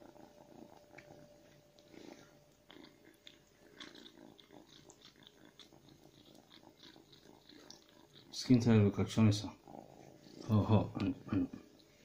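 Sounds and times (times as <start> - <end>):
kitten chewing: 0.0 - 8.4.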